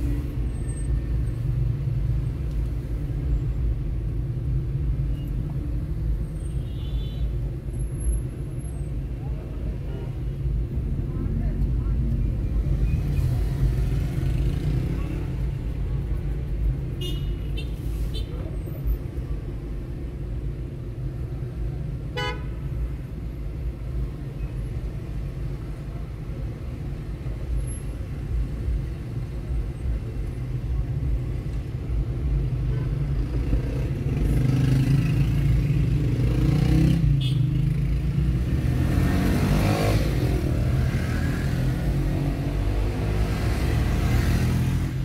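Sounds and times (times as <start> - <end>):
car engine and road rumble: 0.0 - 45.0
city traffic: 0.0 - 45.0
car horn toot: 22.2 - 22.5.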